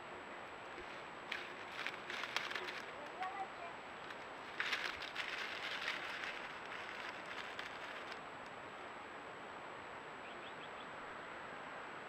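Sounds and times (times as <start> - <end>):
steady hiss: 0.0 - 9.8
animal rustling in dry leaves: 0.8 - 8.3.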